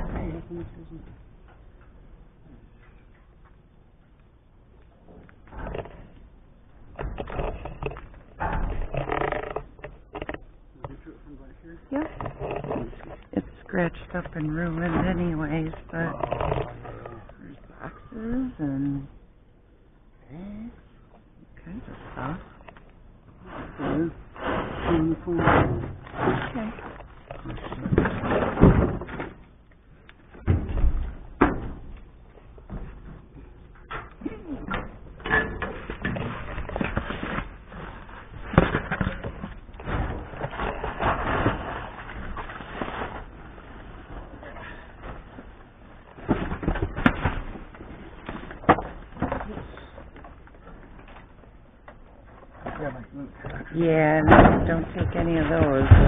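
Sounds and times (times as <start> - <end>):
scraping and clattering in dumpster: 23.4 - 27.0, 27.6 - 29.4, 34.7 - 49.5, 54.2 - 56.0
cardboard and rubbish rustling: 23.4 - 29.4, 35.6 - 51.6, 54.2 - 56.0
thumps and knocks in dumpster: 27.7 - 29.4, 30.4 - 32.0, 54.2 - 56.0.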